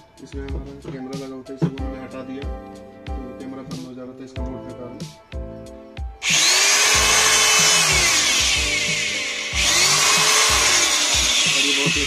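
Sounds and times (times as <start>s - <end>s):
electric drill drilling into wood: 6.2s - 12.0s.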